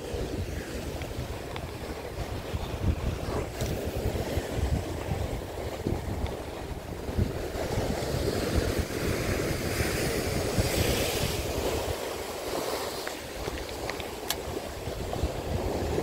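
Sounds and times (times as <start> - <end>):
choppy sea waves: 0.0 - 16.0
wind buffeting microphone: 0.0 - 16.0.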